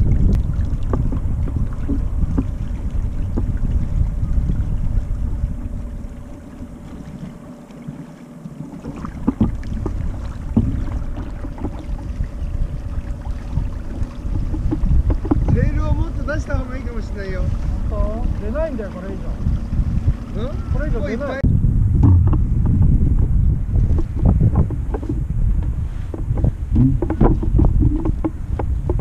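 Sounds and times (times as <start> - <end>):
wind buffeting microphone: 0.0 - 8.0, 8.6 - 29.0
water slapping against hull: 0.0 - 21.4, 22.0 - 29.0.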